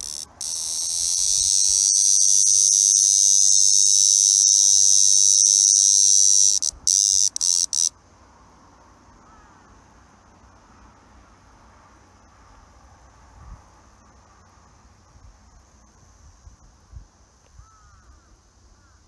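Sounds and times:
cicada buzzing: 0.0 - 8.0.

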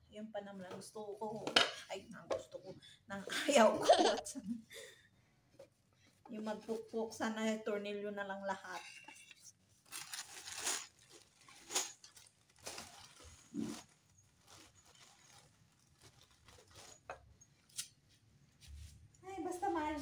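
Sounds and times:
plastic bag rustling: 9.8 - 20.0.

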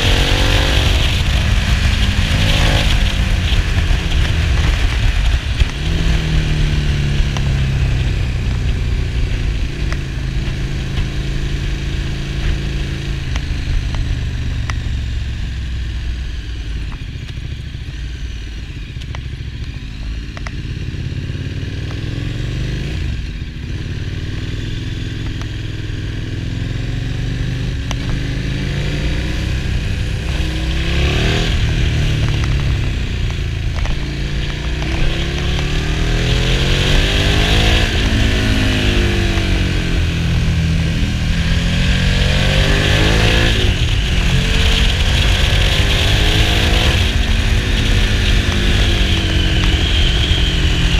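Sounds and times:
wind rush: 0.0 - 11.8, 28.2 - 50.9
motorcycle engine revving: 0.0 - 50.9.

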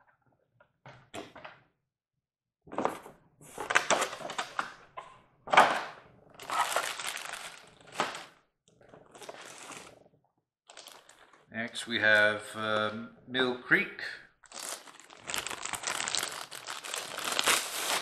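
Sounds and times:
plastic wrap crinkling: 6.4 - 8.3, 9.1 - 9.9, 10.7 - 11.4, 14.4 - 18.0.

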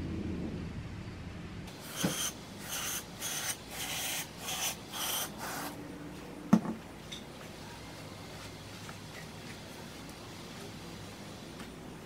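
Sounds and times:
short hissing sprays: 1.7 - 5.8.

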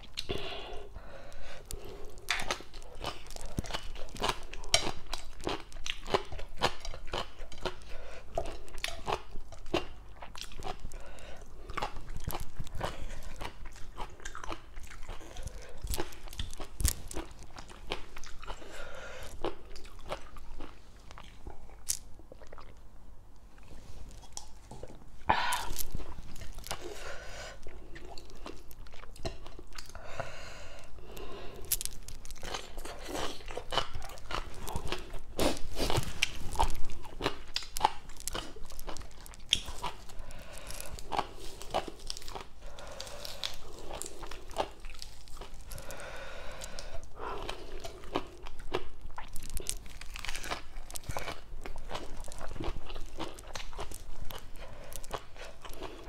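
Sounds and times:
person chewing crisp vegetables: 0.0 - 56.0.

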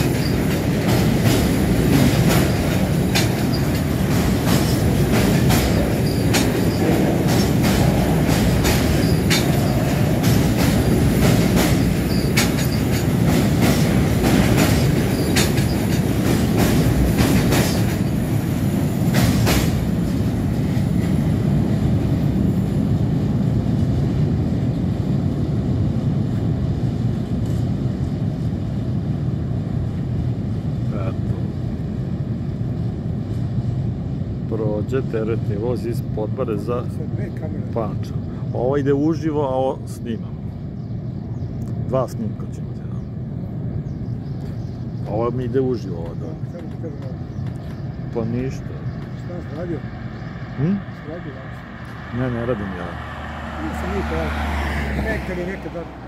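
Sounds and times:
train wheels clicking over rail joints: 0.0 - 23.6, 44.3 - 49.8
loud low train rumble: 0.0 - 56.0.

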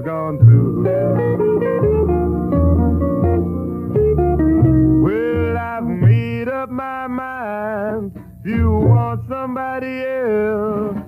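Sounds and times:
rhythm and blues record: 0.1 - 6.6.

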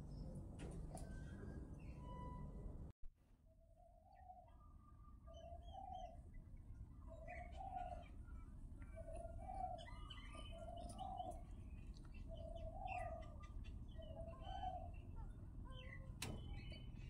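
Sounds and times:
small birds chirping: 5.2 - 17.0.

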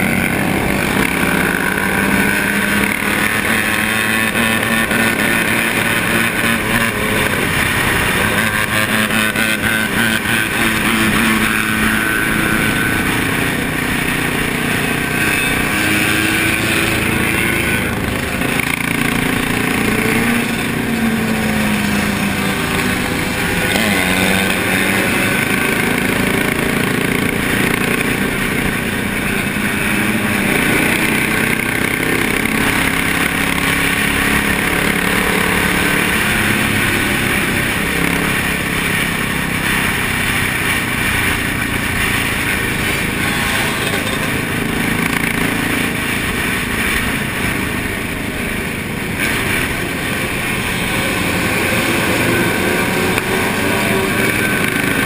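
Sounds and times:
motorcycle engines running: 0.0 - 55.0.

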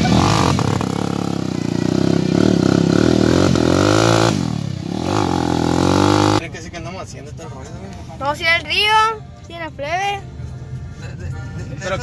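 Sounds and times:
dirt bike engine revving: 0.0 - 6.4.

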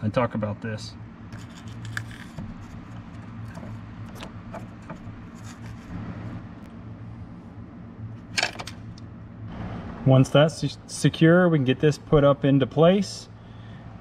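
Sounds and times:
steady low hum: 0.0 - 14.0
light scraping: 1.3 - 6.4.

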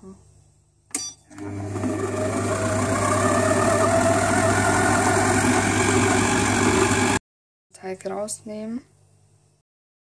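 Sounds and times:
kitchen machine motor humming: 1.3 - 7.2
blade churning dough: 1.4 - 7.2.

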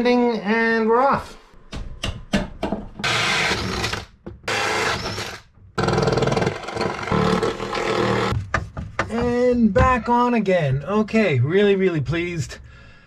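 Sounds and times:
electric drill running: 3.0 - 8.3.

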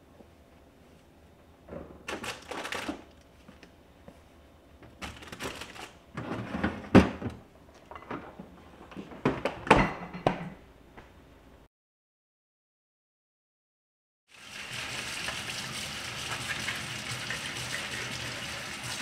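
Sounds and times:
vegetables rustling: 2.1 - 3.5, 5.0 - 6.0.

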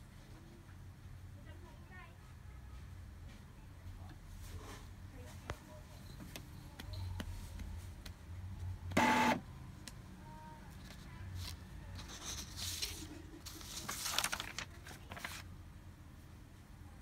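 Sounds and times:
printer mechanical buzz: 8.9 - 9.4
printer mechanism humming: 8.9 - 9.4.

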